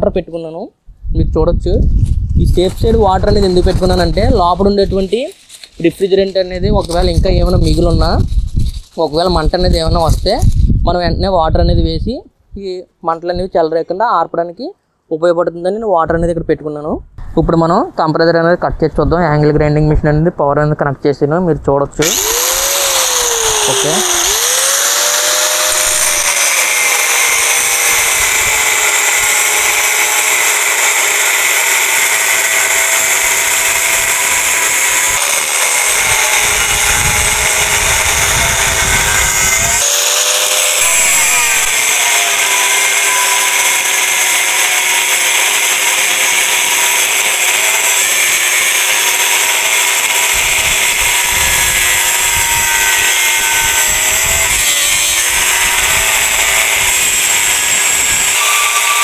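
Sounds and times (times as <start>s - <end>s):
angle grinder cutting metal: 2.4s - 10.7s, 22.0s - 59.0s.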